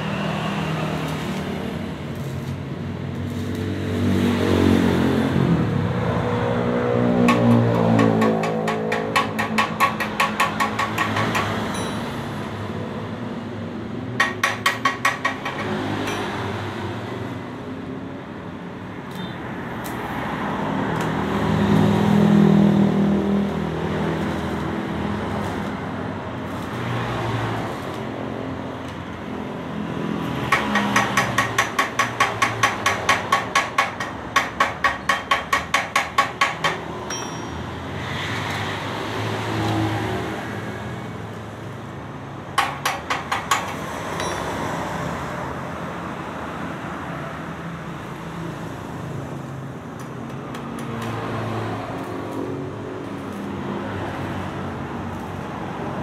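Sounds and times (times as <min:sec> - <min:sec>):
hammer tapping on steel muffler: 0:07.2 - 0:12.2, 0:14.2 - 0:16.4, 0:30.3 - 0:37.7, 0:42.5 - 0:44.7.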